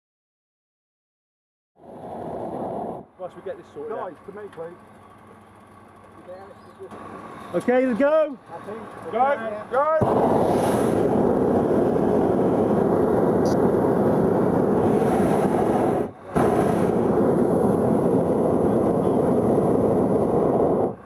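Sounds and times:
propane burner blast: 1.8s - 4.5s, 9.9s - 21.0s.

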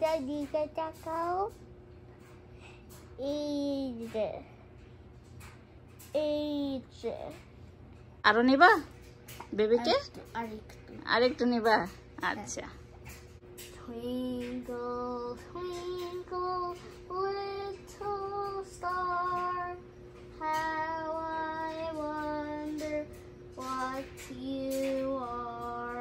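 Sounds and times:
child singing wordless melody: 0.0s - 1.6s, 3.2s - 4.6s, 6.0s - 7.5s, 13.7s - 26.0s.

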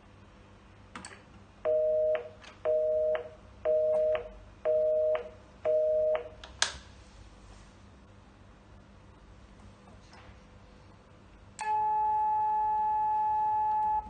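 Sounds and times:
telephone busy signal beeps: 1.7s - 6.3s, 11.6s - 14.0s
telephone line click: 11.6s - 14.0s.

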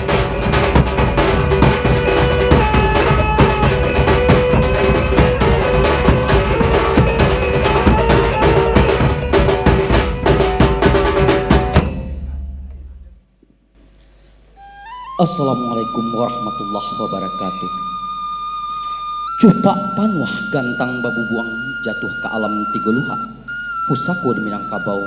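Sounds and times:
drums beating fast rhythm: 0.0s - 12.9s.

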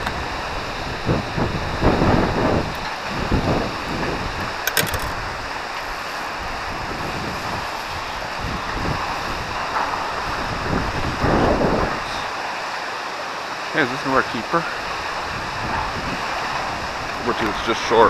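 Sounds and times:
wind buffeting microphone: 0.0s - 12.3s, 14.8s - 18.0s
choppy river water: 0.0s - 18.0s
small clicks: 4.7s - 5.2s.

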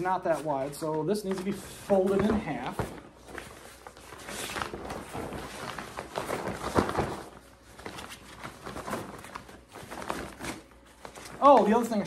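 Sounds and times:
fabric rustling and flapping: 0.0s - 12.0s.

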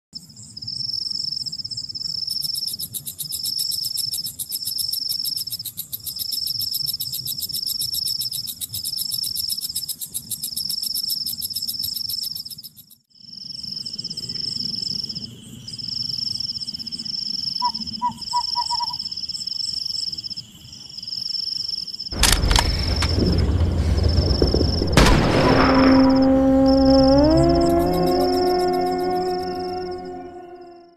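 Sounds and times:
insects trilling: 0.4s - 24.9s
steady high whine: 22.2s - 30.9s.

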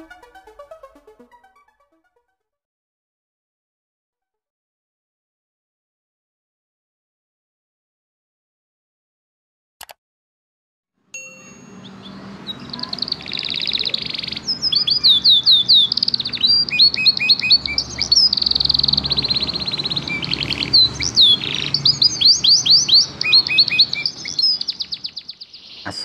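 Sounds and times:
canary singing: 11.2s - 26.0s.

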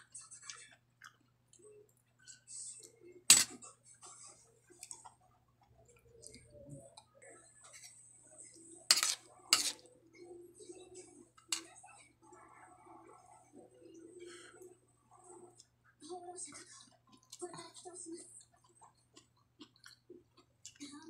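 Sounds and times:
spoon clinking on ceramic plate: 8.9s - 9.8s.

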